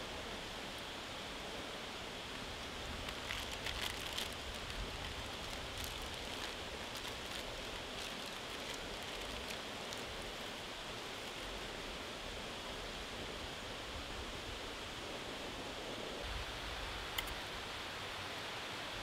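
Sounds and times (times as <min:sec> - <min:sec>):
packet crackling: 0:03.0 - 0:10.5.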